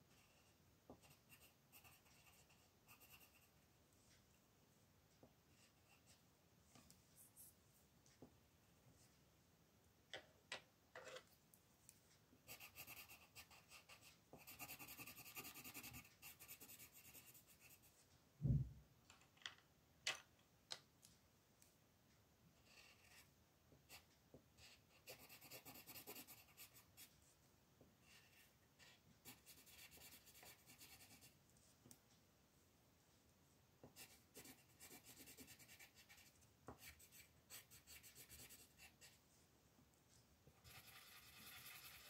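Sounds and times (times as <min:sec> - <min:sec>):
coloring tip scratching on paper: 0:12.5 - 0:17.9, 0:24.6 - 0:27.1, 0:28.0 - 0:31.3, 0:34.0 - 0:39.2, 0:40.6 - 0:42.0
dull low thump: 0:18.4 - 0:18.8.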